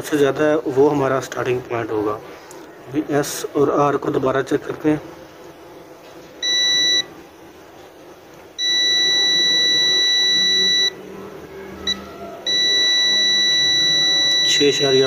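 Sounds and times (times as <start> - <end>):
multimeter continuity buzzer beeping: 6.4 - 7.1, 8.6 - 11.0, 11.8 - 15.0.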